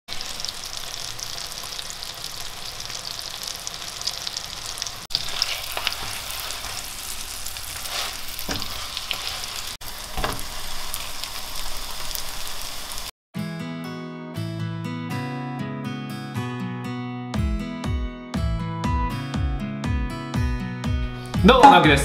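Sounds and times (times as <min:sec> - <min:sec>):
onions sizzling in a frying pan: 0:00.1 - 0:13.1.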